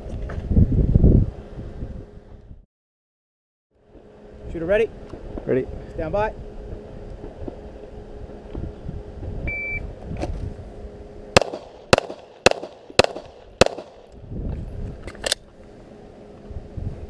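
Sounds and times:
shot timer beep: 9.5s - 9.8s
pistol shots: 11.4s - 14.1s.

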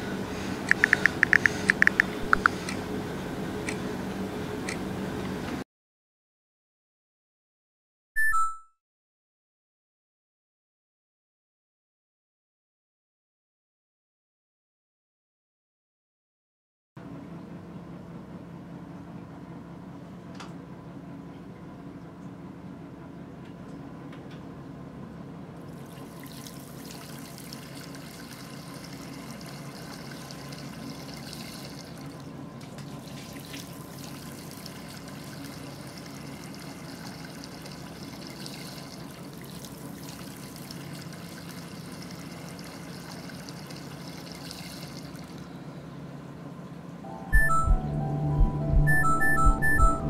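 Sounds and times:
water running from sink tap: 25.7s - 45.4s
low steady hum: 42.4s - 50.0s.

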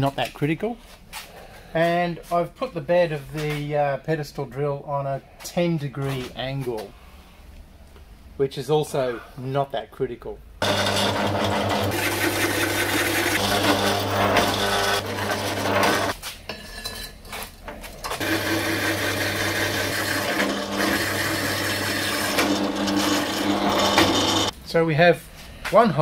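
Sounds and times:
drill motor hum: 10.6s - 16.1s, 18.1s - 24.5s
hole saw cutting metal: 10.6s - 16.2s, 18.1s - 24.5s.

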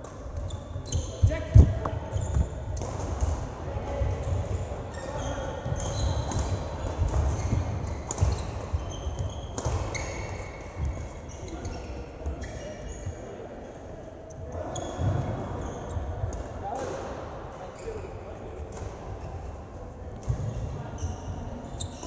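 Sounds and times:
sports shoes squeaking on court: 0.1s - 13.2s, 14.3s - 16.2s, 20.3s - 22.0s.

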